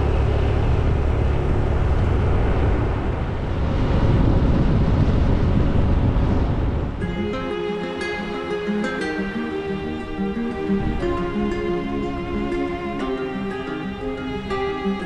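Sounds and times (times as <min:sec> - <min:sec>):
vehicle driving on a road: 0:00.0 - 0:07.0.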